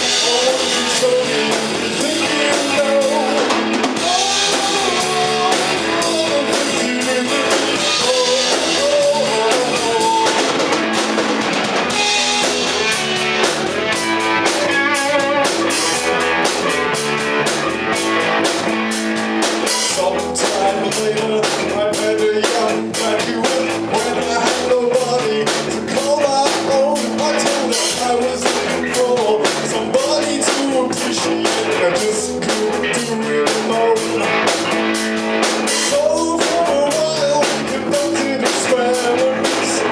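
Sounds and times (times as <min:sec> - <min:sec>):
bending electric guitar lines: 0:00.0 - 0:21.9
rock band playing live: 0:00.0 - 0:39.9.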